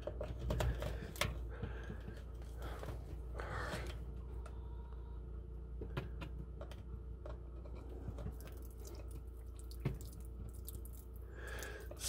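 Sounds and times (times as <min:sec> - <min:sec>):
faint steady hum: 0:00.0 - 0:12.0
water dripping: 0:08.3 - 0:12.0.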